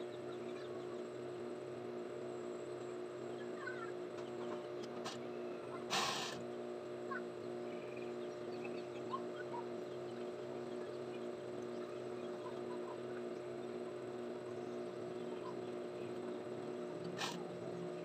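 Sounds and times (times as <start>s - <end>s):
short noisy burst: 5.9s - 6.4s.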